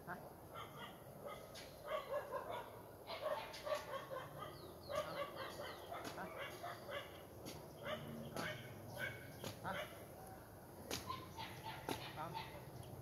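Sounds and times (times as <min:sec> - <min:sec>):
animal yelping: 0:11.0 - 0:12.7.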